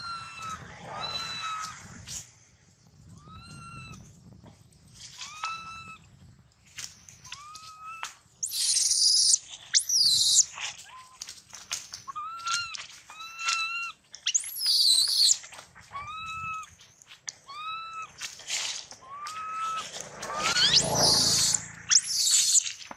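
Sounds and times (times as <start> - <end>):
baby monkey distress calls: 0.0 - 1.7, 3.2 - 4.0, 5.2 - 6.0, 7.3 - 11.2, 12.1 - 16.7, 17.4 - 18.2, 19.0 - 22.7
shrill monkey screams: 0.0 - 1.8, 5.2 - 6.0, 7.3 - 11.2, 12.1 - 16.7, 17.5 - 18.2, 19.0 - 22.7.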